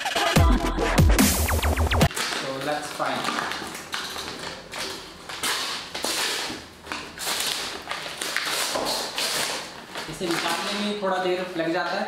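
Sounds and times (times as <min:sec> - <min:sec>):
paper crinkling and tearing: 0:02.1 - 0:12.0.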